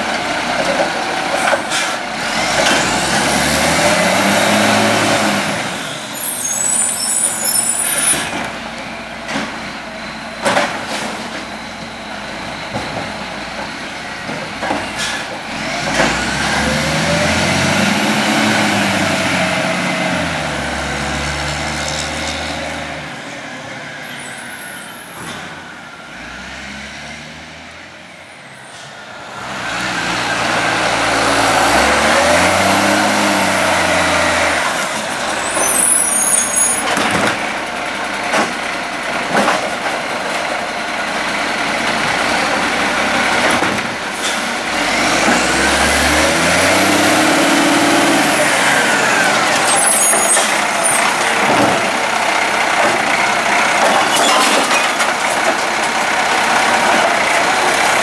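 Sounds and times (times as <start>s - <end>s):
diesel engine revving: 0.0s - 24.3s, 25.2s - 58.0s
air brake hisses: 1.6s - 2.0s, 14.8s - 15.4s.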